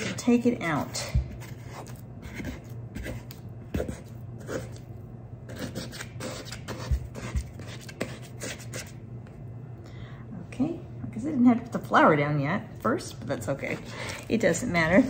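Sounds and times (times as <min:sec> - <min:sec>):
dough squelching in a bowl: 0:00.0 - 0:09.0
low steady hum: 0:00.0 - 0:15.0.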